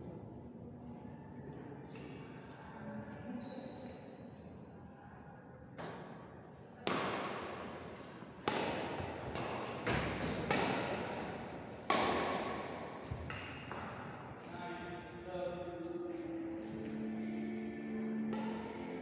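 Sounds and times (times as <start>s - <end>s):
rackets hitting shuttlecock: 6.8s - 14.5s, 18.3s - 19.0s.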